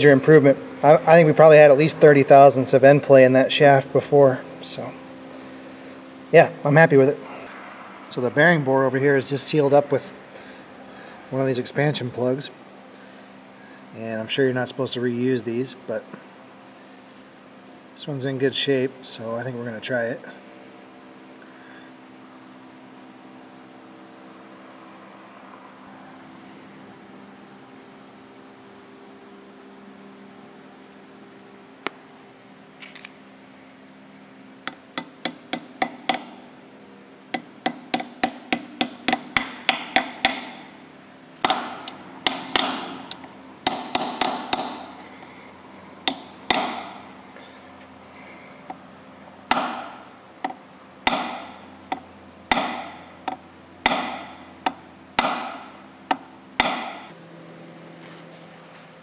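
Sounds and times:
hammer tapping metal plug: 34.7 - 36.4, 37.3 - 40.7, 41.4 - 45.0, 46.0 - 47.1, 49.5 - 57.1.

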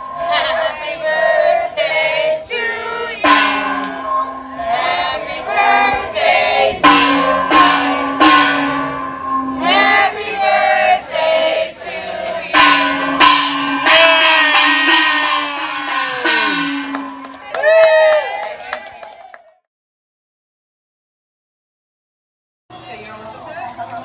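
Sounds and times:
group of voices singing together: 0.0 - 17.1
sharp percussive hits: 3.2 - 11.0, 12.5 - 17.7.

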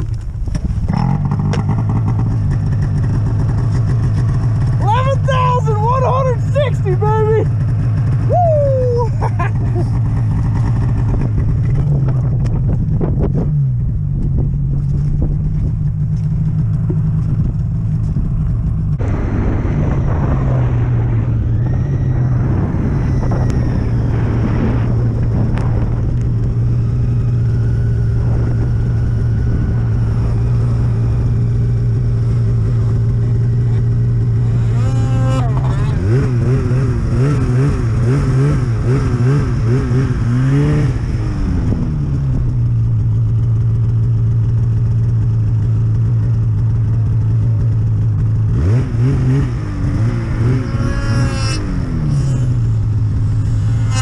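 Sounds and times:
rushing wind and snow: 0.0 - 34.9, 35.5 - 54.0
snowmobile engine running: 0.0 - 54.0.

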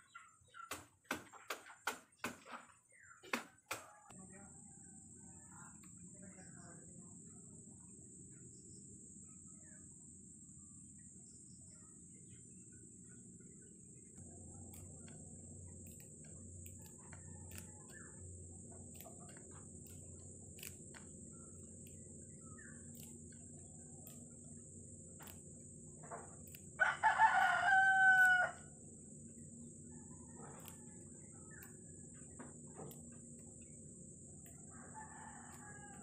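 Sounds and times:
rooster crowing: 26.8 - 28.8, 29.8 - 31.6, 34.5 - 36.0.

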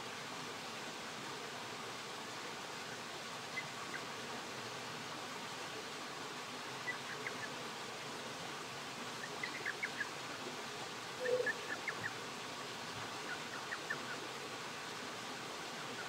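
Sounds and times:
creek water hissing: 0.0 - 16.0.

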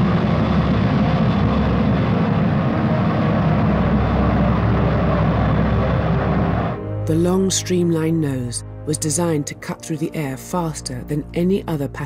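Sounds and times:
jet engine roaring: 0.0 - 7.0.

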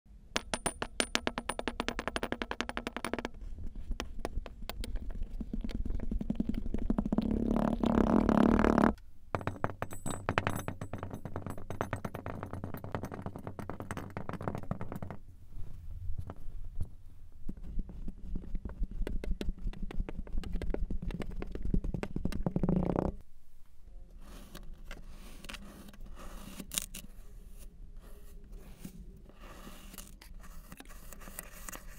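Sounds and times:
metal scoop scraping sand: 24.2 - 31.9.

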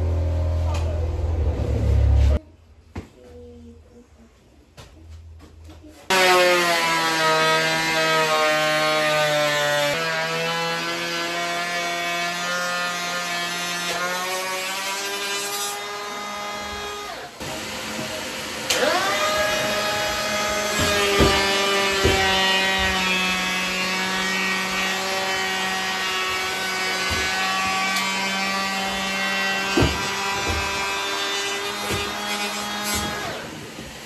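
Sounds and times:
electric hand planer motor: 6.1 - 34.0
knocks: 29.7 - 30.8.

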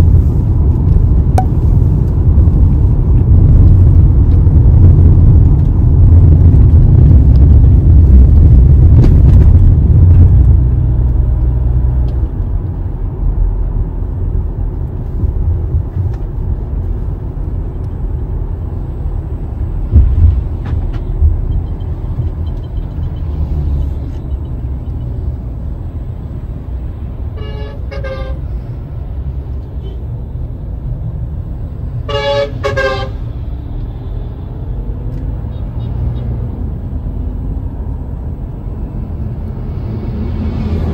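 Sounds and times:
car engine and road noise: 0.0 - 40.9
car horn tooting: 27.3 - 28.4, 32.0 - 33.2.

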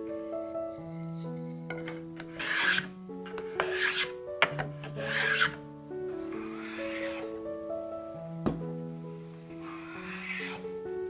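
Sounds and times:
soft background music: 0.0 - 11.0
sanding block rasping on wood: 2.3 - 4.1, 5.0 - 5.6, 6.3 - 7.2, 9.6 - 10.6.

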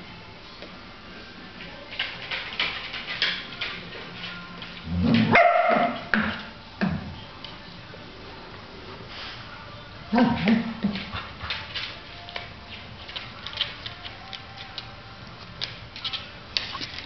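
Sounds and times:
dog barking: 5.2 - 6.1.

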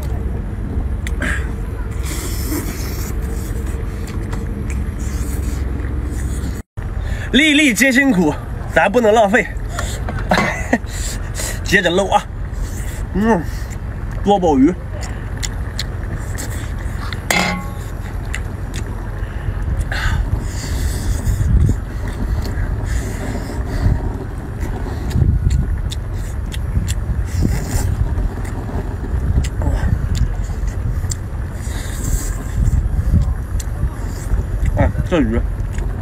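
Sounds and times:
low background rumble: 0.0 - 36.0
man eating and sucking: 1.0 - 6.6, 19.8 - 34.8.

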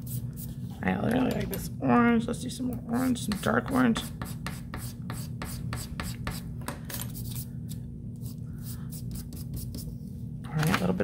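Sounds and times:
chalk scraping on paper: 0.0 - 0.6, 3.3 - 6.5, 7.1 - 7.5, 8.2 - 10.0.

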